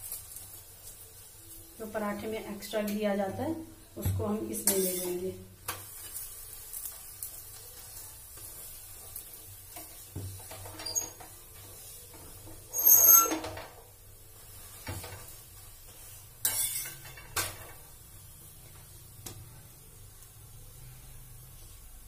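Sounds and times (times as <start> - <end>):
spoon scrape: 4.7 - 5.2, 16.4 - 17.1.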